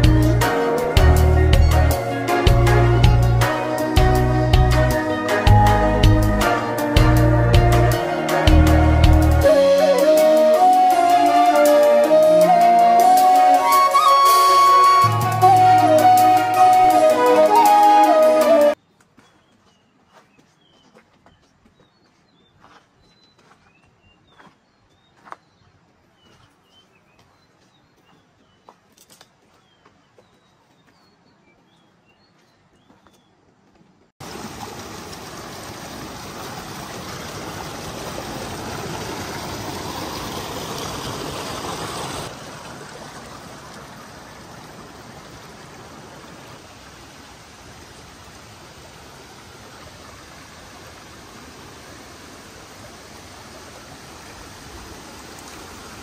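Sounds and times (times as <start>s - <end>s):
stream rushing over rocks: 34.2s - 56.0s.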